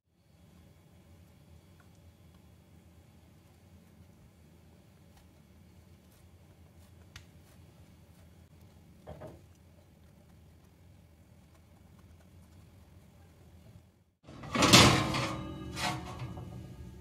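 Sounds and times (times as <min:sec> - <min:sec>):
soft scrape: 0:15.2 - 0:16.7.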